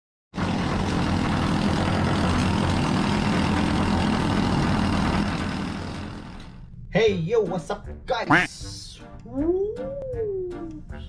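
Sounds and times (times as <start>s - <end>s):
heavy machinery droning: 0.4s - 6.7s.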